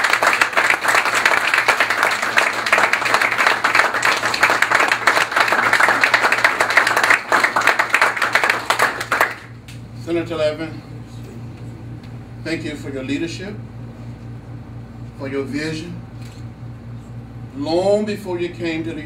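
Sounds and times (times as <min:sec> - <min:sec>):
audience applause: 0:00.0 - 0:09.5.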